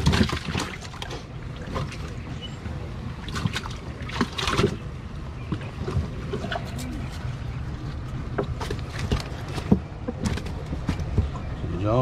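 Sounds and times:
water splashing in a plastic tub: 0:00.0 - 0:07.2.

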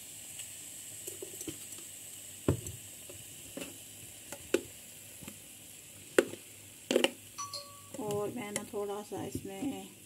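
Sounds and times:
faint steady hiss: 0:00.0 - 0:10.0.

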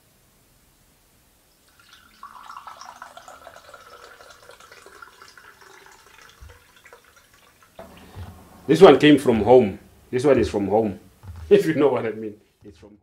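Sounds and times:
milk pouring into a glass: 0:01.6 - 0:07.8.

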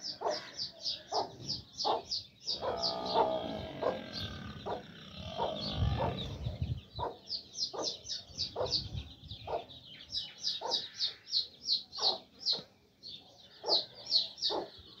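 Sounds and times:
chicks peeping: 0:00.0 - 0:15.0
hen clucking: 0:01.1 - 0:07.2.

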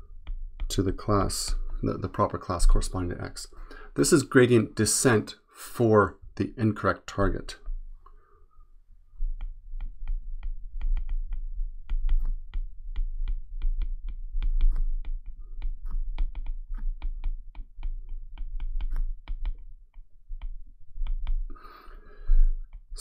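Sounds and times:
stylus tapping on glass screen: 0:09.3 - 0:21.6.

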